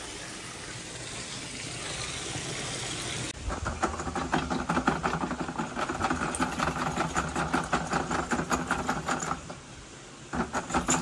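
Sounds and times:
spinning cable rattling: 3.4 - 9.6, 10.3 - 11.0.

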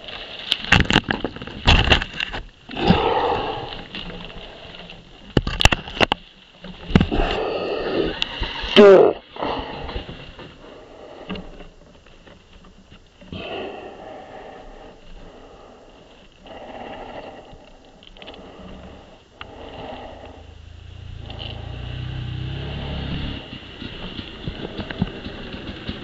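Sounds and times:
heavy breathing: 13.4 - 22.9
motorcycle engine running: 19.9 - 26.0.

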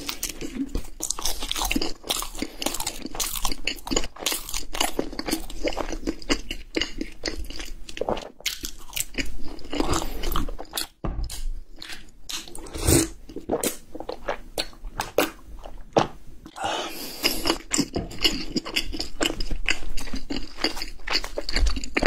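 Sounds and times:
chewing crunchy pastry: 0.0 - 15.9, 16.5 - 22.0.

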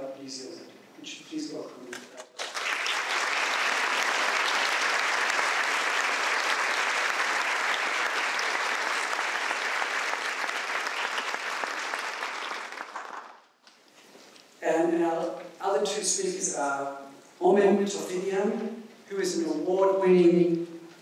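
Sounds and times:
audience applauding: 2.3 - 13.5.

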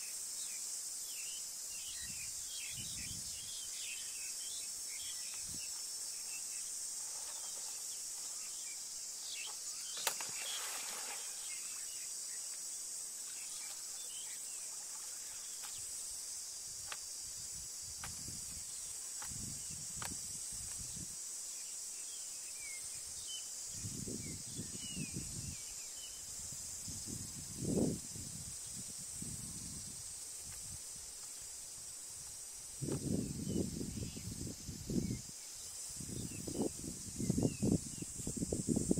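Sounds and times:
high-pitched insect drone: 0.0 - 38.9
rustling and thuds in mud: 9.4 - 11.6.

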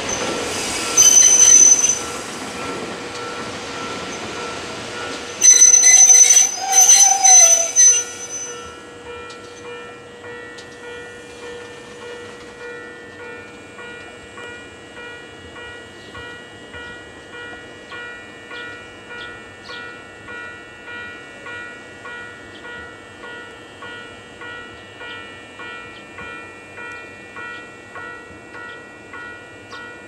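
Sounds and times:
train brakes squealing: 0.0 - 8.8.

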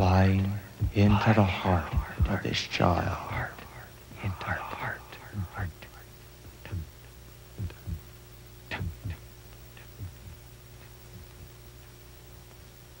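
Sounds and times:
steady low hum: 0.0 - 13.0
heartbeat thumps: 0.6 - 2.6, 7.6 - 9.2, 9.8 - 12.0.

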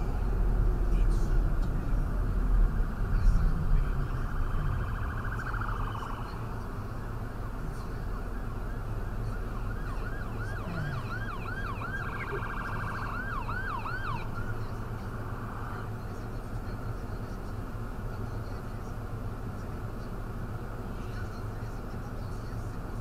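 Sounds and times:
emergency vehicle siren: 2.7 - 15.9.

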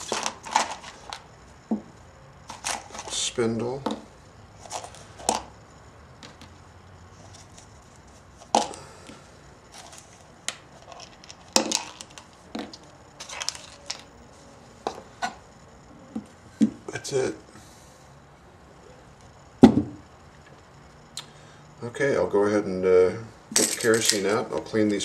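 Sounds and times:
small metal parts clicking: 23.6 - 24.4.

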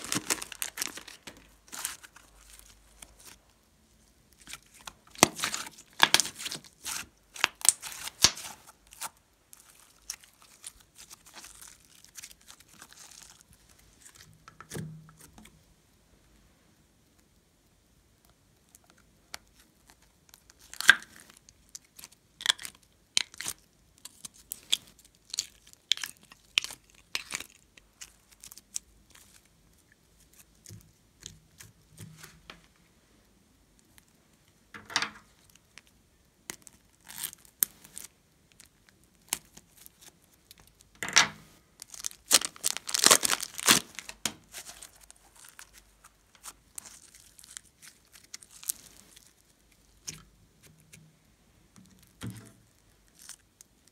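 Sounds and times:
plastic crinkling and crackling: 0.0 - 3.6, 4.3 - 15.6, 41.8 - 51.0.

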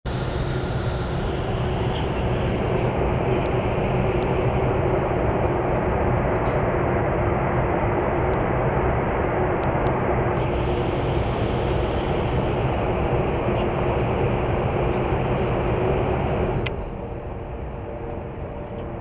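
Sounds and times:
steady hum: 0.1 - 19.0
train rumbling at speed: 0.1 - 19.0.

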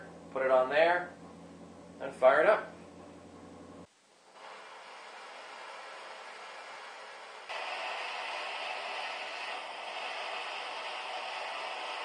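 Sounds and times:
propane torch hissing: 4.3 - 12.0.

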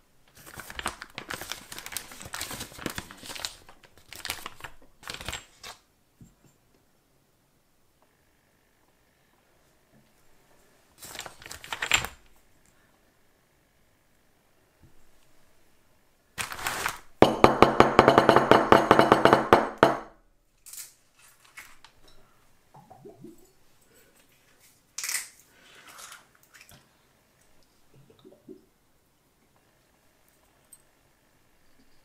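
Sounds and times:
rustling: 16.4 - 17.2.

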